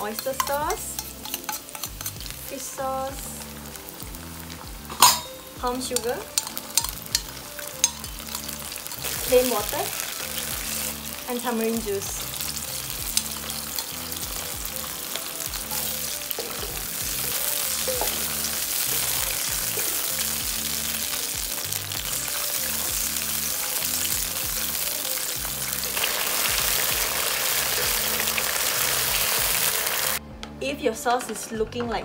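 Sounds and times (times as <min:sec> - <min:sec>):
spatula stirring: 0:00.0 - 0:02.5, 0:05.9 - 0:20.7
sauce sizzling and bubbling in wok: 0:00.0 - 0:30.2.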